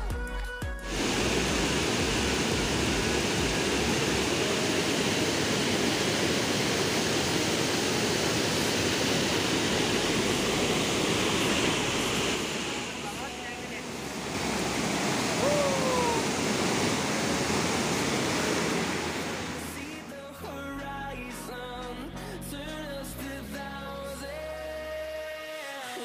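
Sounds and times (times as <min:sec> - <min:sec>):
background music: 0:00.0 - 0:04.3, 0:19.5 - 0:26.0
waterfall rushing over rocks: 0:00.8 - 0:20.4.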